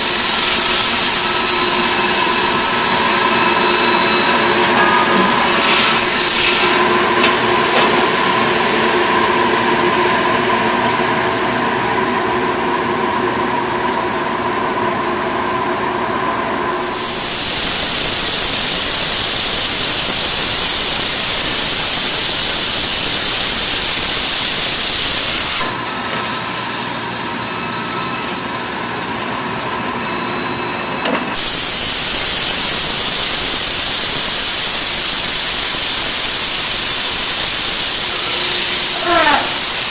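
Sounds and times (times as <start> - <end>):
machine whine with held tones: 0.0 - 5.4, 27.1 - 39.9
loud hiss: 0.0 - 8.6, 16.8 - 28.0, 31.4 - 39.9.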